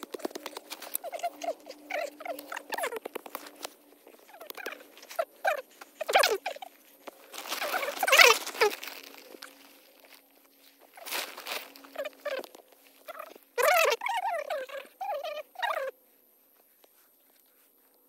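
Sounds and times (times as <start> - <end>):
hand tool scraping dry soil: 0.0 - 12.5.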